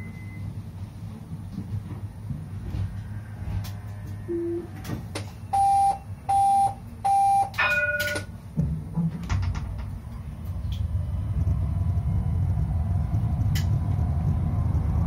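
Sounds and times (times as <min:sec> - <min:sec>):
low hum of tram: 0:00.0 - 0:15.0
short electronic beeps: 0:05.5 - 0:08.2.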